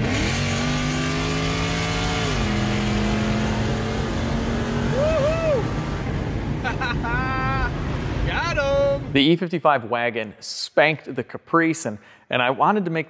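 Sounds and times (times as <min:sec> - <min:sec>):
car engine accelerating: 0:00.0 - 0:09.1.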